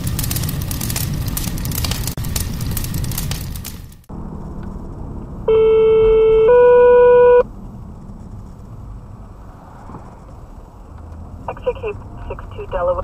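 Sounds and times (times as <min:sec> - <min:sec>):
low vehicle cab drone: 0:00.0 - 0:13.0
two-tone radio paging alert: 0:05.5 - 0:07.4.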